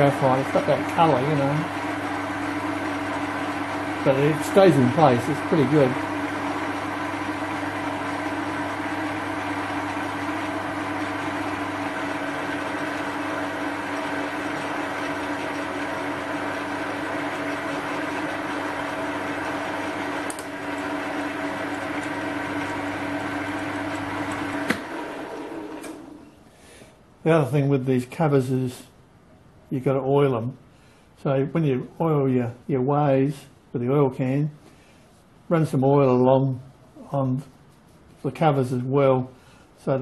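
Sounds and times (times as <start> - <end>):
metal lathe running: 0.0 - 26.2.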